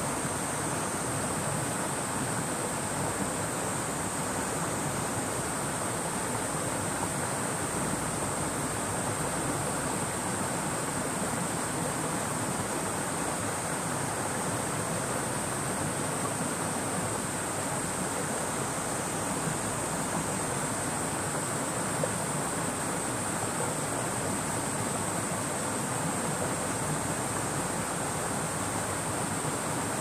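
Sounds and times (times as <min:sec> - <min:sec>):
cicadas droning: 0:00.0 - 0:30.0.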